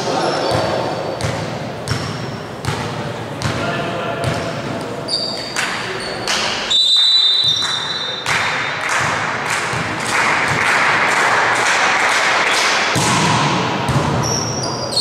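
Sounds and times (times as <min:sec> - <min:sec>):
sports hall noise: 0:00.0 - 0:15.0.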